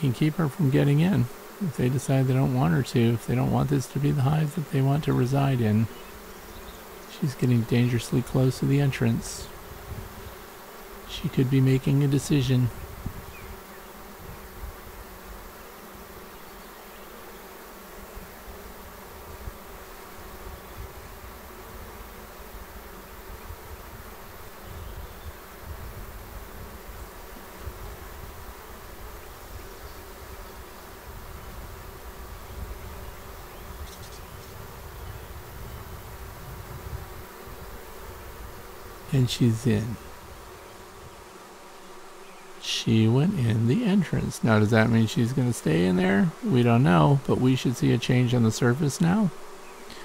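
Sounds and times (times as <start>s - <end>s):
honeybee swarm humming: 0.0s - 50.0s.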